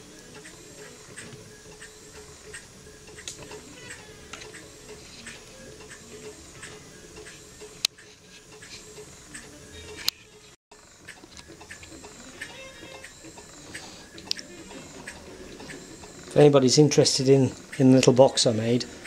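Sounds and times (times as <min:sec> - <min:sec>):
faint steady hum: 0:00.0 - 0:19.0
model engine clicking rhythmically: 0:10.7 - 0:19.0.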